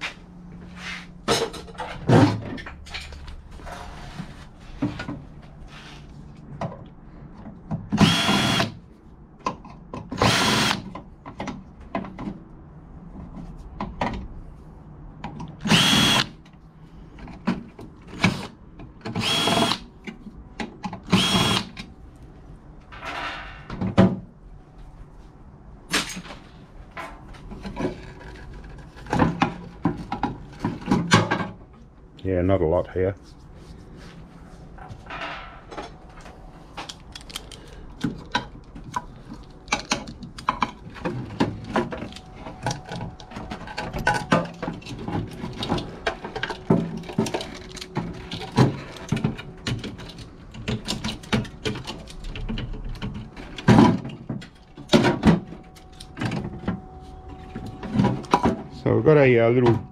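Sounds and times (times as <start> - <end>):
parts clicking and knocking: 6.4 - 14.4, 15.0 - 24.3, 34.8 - 56.9
power drill whining: 8.0 - 8.7, 10.2 - 10.8, 15.6 - 16.3, 19.2 - 19.8, 21.1 - 21.7.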